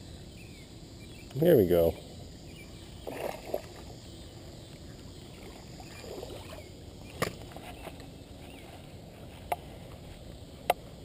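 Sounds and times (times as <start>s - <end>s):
fish splashing at water surface: 3.0s - 3.9s.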